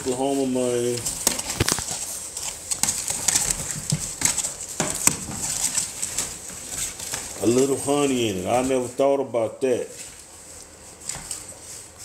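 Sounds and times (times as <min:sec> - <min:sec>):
bedding rustling: 0:00.0 - 0:09.0.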